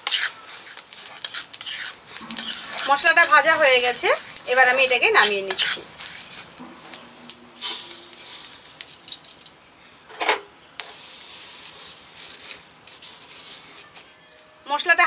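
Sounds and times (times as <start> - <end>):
wooden spatula scraping: 0.0 - 9.0, 10.8 - 14.1
spices rattling onto plate: 7.6 - 9.6.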